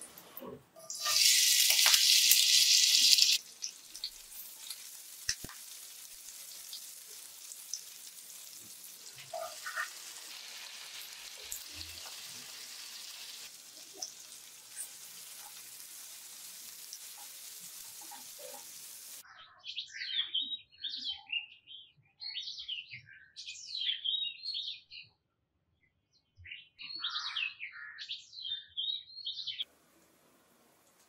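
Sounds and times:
spices sizzling in oil: 0:00.0 - 0:19.2, 0:29.6 - 0:31.0.

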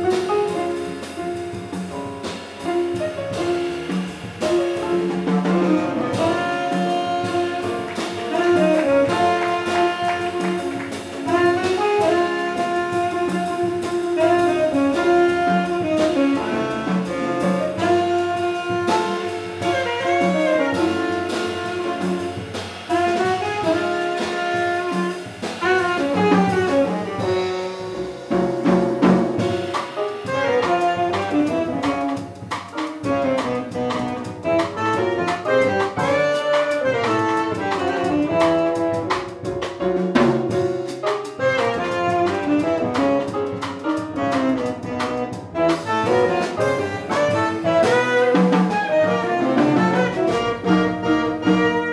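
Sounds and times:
drum kit: 0:00.0 - 0:51.9
piano: 0:00.0 - 0:51.9
upright bass: 0:00.0 - 0:51.9
saxophone: 0:03.3 - 0:28.2, 0:29.4 - 0:39.4, 0:41.3 - 0:51.9.

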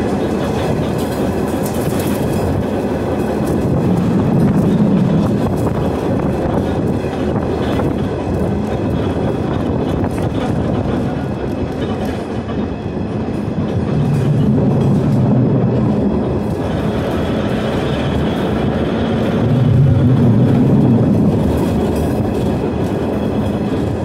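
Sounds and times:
streetcar wheels rumbling on rails: 0:00.0 - 0:24.0
low hum: 0:13.4 - 0:24.0.

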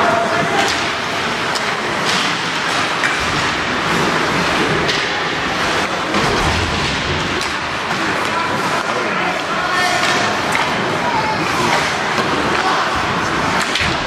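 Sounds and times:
skates scraping ice: 0:00.1 - 0:14.0
hockey sticks and puck knocking: 0:00.2 - 0:14.0.

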